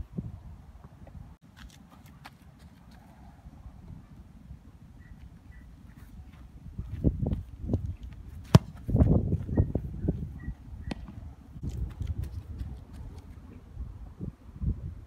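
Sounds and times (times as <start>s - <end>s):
boot kicking a football: 6.3s - 9.5s.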